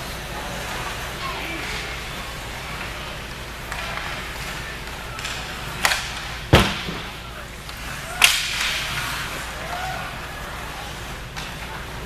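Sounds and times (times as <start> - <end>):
faint voices: 0.0 - 12.0
hockey stick and puck knocks: 5.1 - 9.1.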